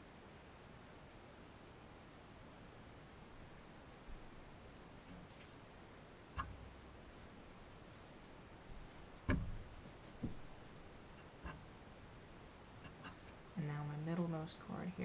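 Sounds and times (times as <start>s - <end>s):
handling noise of yarn: 0.7s - 13.6s
dull thump: 9.2s - 10.5s.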